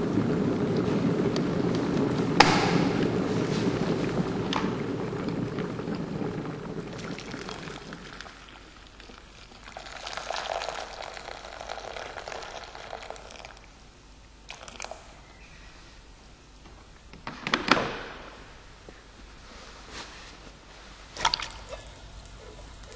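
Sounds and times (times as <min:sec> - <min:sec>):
kettle rumbling: 0:00.0 - 0:17.2, 0:18.4 - 0:22.9
sharp knocks: 0:02.4 - 0:03.2
water pouring into glass bowl: 0:06.8 - 0:13.7, 0:14.5 - 0:15.1, 0:21.2 - 0:22.9.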